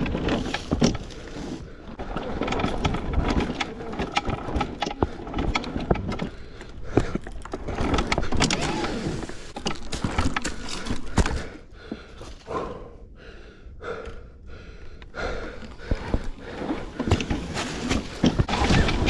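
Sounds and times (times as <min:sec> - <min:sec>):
bike knocking and rattling: 0:00.0 - 0:12.4, 0:14.8 - 0:19.0
tyre and ground rumble: 0:00.0 - 0:12.9, 0:15.0 - 0:19.0.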